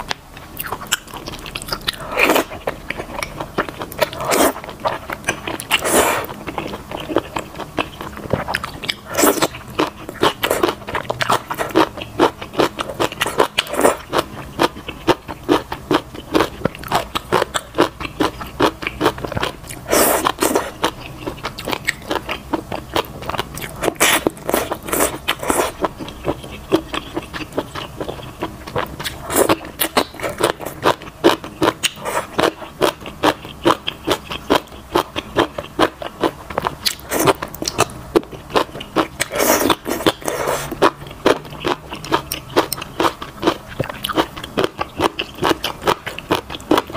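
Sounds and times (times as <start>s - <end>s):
wet chewing and smacking: 0.0s - 46.9s
noodle slurps: 4.0s - 4.6s, 5.7s - 6.3s, 19.8s - 20.8s, 23.8s - 25.8s, 39.2s - 40.8s.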